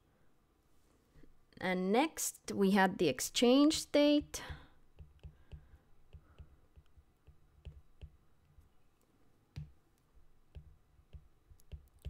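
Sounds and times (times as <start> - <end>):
stylus tapping on glass screen: 4.4 - 8.6, 9.5 - 9.8, 10.5 - 12.0.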